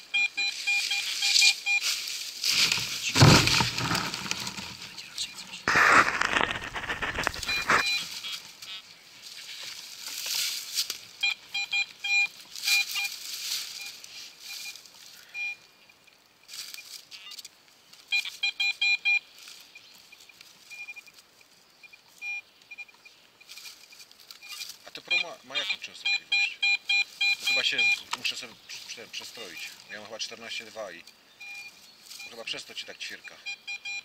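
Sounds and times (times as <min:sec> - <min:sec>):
metal detector beeps: 0:00.0 - 0:01.9, 0:02.6 - 0:04.8, 0:05.4 - 0:08.8, 0:11.2 - 0:14.8, 0:15.4 - 0:15.6, 0:18.1 - 0:21.1, 0:21.8 - 0:30.0, 0:31.4 - 0:34.0
spade digging in soil: 0:02.4 - 0:05.0, 0:05.6 - 0:08.3.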